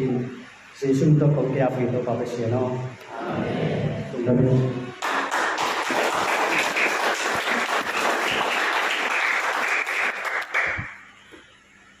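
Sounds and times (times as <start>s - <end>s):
crowd applauding: 5.0s - 11.0s.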